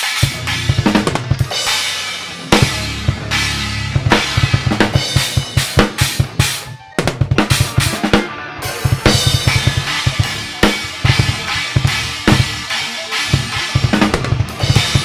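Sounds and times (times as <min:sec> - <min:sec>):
cymbal crashes: 0:00.0 - 0:06.6.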